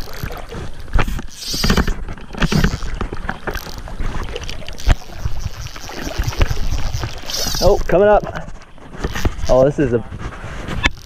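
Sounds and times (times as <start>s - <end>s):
water sloshing: 0.0s - 11.0s
clothing rubbing on microphone: 4.0s - 11.0s.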